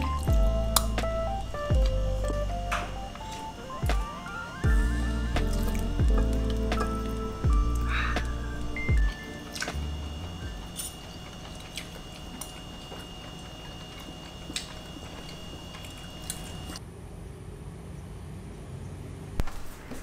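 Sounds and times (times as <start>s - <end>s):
low room hiss: 0.0s - 20.0s
chewing: 5.0s - 16.8s.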